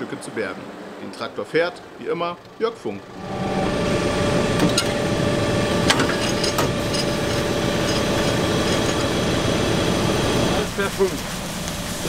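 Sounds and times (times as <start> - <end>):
steady hum: 0.6 - 12.0
tractor engine running: 2.4 - 12.0.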